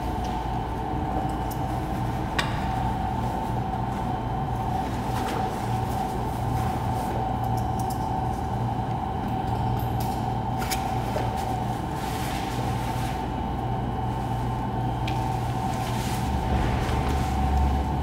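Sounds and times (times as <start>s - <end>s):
low hum: 0.0s - 18.0s
deep rumble: 15.1s - 18.0s.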